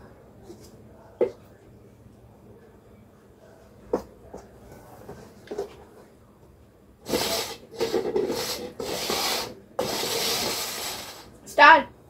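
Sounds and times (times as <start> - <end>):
plastic cups scraping on table: 7.0 - 11.3.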